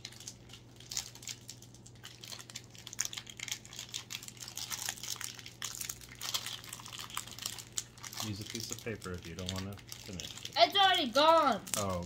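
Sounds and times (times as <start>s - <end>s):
wrapper crackling: 0.0s - 12.0s.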